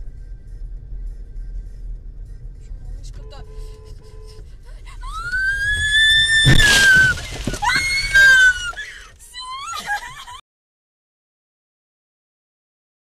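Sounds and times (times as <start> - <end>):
car crashing into snowbank: 5.6 - 8.8
person screaming: 6.0 - 9.0.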